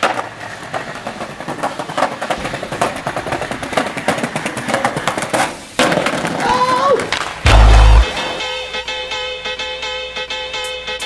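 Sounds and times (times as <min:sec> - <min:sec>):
skateboard wheels rolling on paving: 0:00.0 - 0:08.7.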